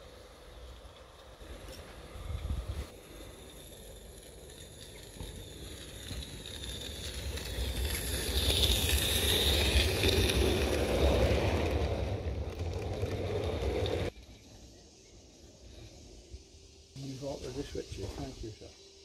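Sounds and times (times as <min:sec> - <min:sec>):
small steam locomotive running: 0:00.0 - 0:19.0
wind rumble on microphone: 0:01.6 - 0:03.4.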